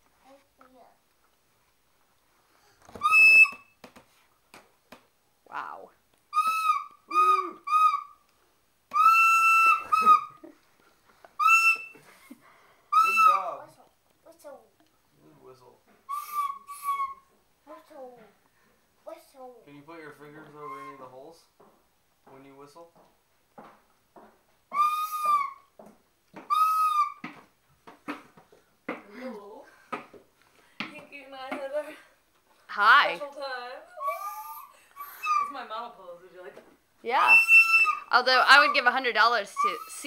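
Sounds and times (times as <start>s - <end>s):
plastic recorder high notes: 2.9s - 3.8s, 6.3s - 8.2s, 8.9s - 10.5s, 11.4s - 12.0s, 12.9s - 13.6s, 16.1s - 17.3s, 24.7s - 25.7s, 26.4s - 27.3s, 34.0s - 35.6s, 37.1s - 38.8s
toy flute toots: 3.0s - 3.7s, 6.3s - 8.2s, 8.9s - 10.5s, 11.4s - 12.0s, 12.9s - 13.6s, 16.1s - 17.3s, 24.7s - 25.7s, 26.5s - 27.2s, 34.0s - 35.6s, 37.1s - 38.8s.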